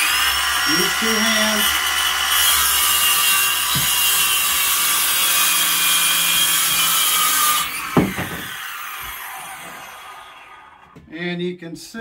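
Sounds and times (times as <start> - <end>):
circular saw cutting wood: 0.0 - 11.0
sharp knock: 8.0 - 8.6.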